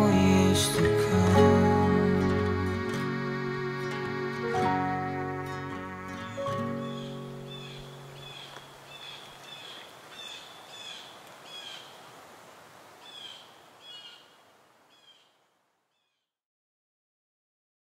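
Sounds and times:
soft instrumental music: 0:00.0 - 0:08.6
small bird chirping: 0:06.2 - 0:12.0, 0:13.0 - 0:16.2.

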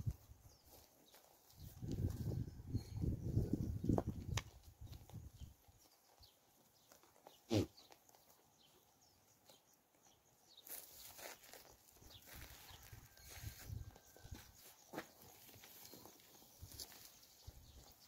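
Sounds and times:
grass rustling: 0:10.6 - 0:18.0.

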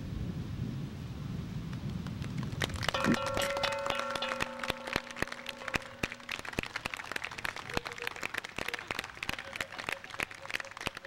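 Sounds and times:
audience applause: 0:02.3 - 0:11.0
sustained piano chord: 0:03.0 - 0:06.6.

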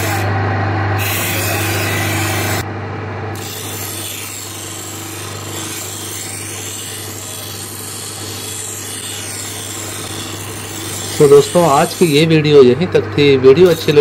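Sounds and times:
electric motor hum: 0:00.0 - 0:14.0
knife scraping on grinding stone: 0:03.4 - 0:12.3.

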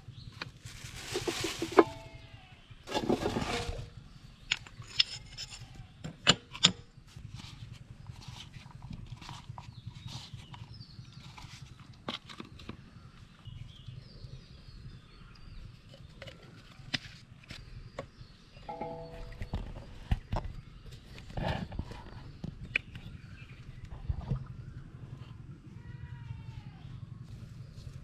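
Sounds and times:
plastic bottles handled: 0:00.4 - 0:02.2.

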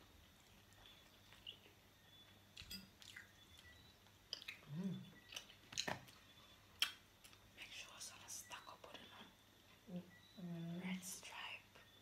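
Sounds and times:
chewing pizza: 0:00.1 - 0:07.4
low voice hum: 0:04.6 - 0:05.1.

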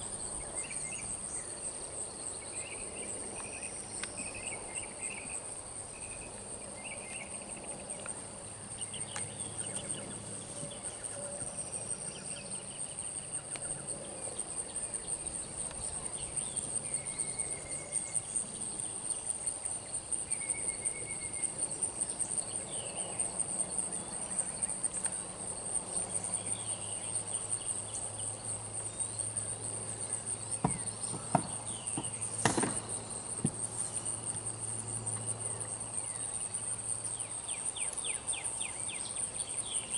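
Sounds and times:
high-pitched insect chorus: 0:00.0 - 0:39.9
hooves on wooden platform: 0:30.6 - 0:32.8.

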